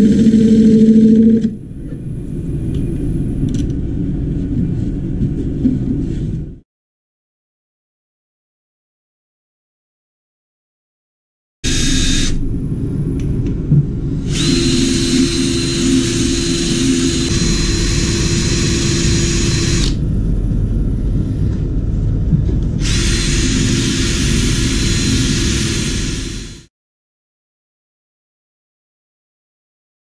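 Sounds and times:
drill whining: 0.0 - 1.6, 11.6 - 12.4, 14.2 - 20.0, 22.8 - 26.7
wood lathe rumbling: 0.0 - 1.6, 14.3 - 20.0, 22.8 - 26.6.

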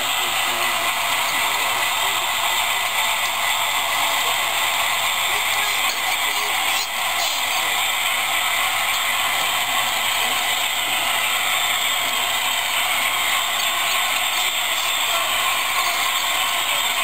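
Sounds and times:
model trains running on track: 0.0 - 17.0.

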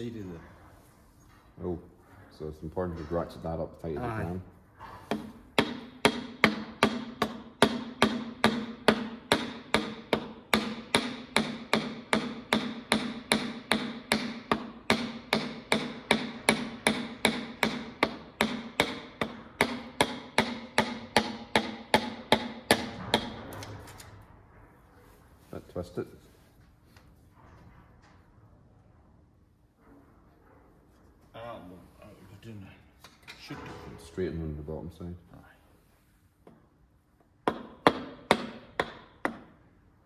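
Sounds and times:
hammer tapping metal: 5.1 - 23.7, 37.4 - 39.6.

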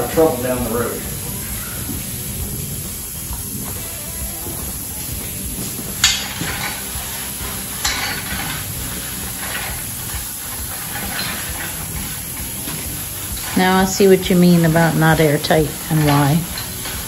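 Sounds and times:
steady hiss: 0.0 - 17.0
metal scrapes and clinks: 6.0 - 13.8, 15.5 - 17.0.

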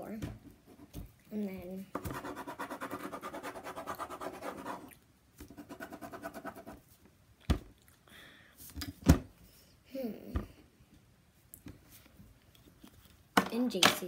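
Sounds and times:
pencil scratching on paper: 2.0 - 4.9, 5.5 - 6.8.

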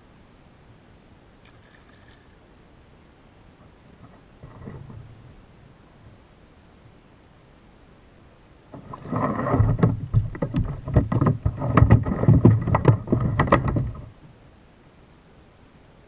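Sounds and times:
water splashing: 8.7 - 14.1
fish knocking on kayak hull: 8.8 - 14.1.

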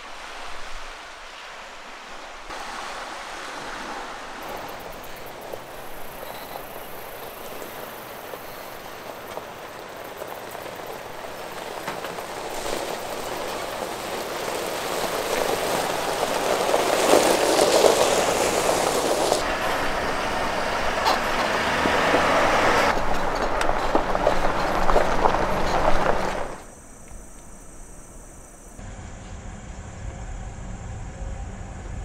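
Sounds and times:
tyres crunching on gravel: 2.5 - 26.8
pickup truck engine: 4.8 - 26.8, 28.8 - 32.0.

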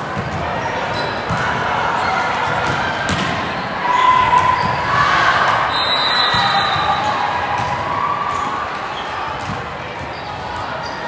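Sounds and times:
hubbub of voices: 0.0 - 11.0
volleyballs thudding: 2.4 - 3.5, 6.3 - 10.1.

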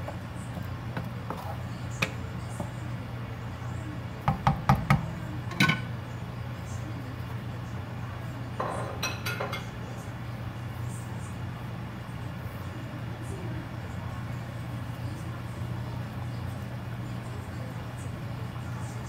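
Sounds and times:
wooden spatula knocking on pan: 4.2 - 5.1.

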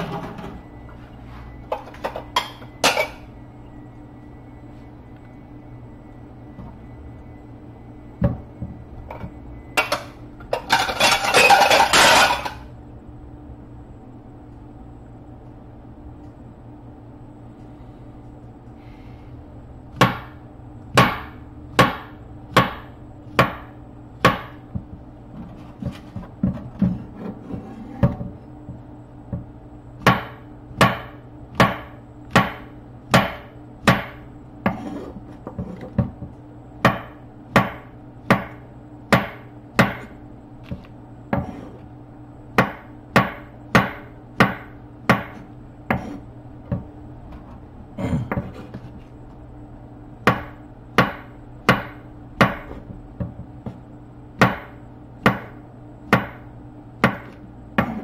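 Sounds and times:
low hum: 0.0 - 58.0
knife chopping on wooden board: 57.0 - 58.0.

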